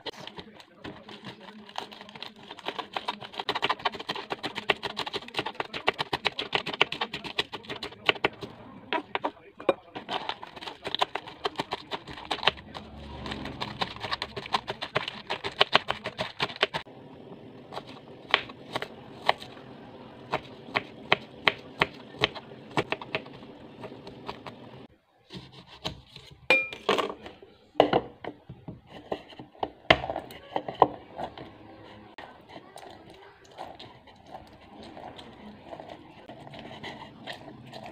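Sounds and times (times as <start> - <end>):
knife chopping on cutting board: 20.3 - 24.6.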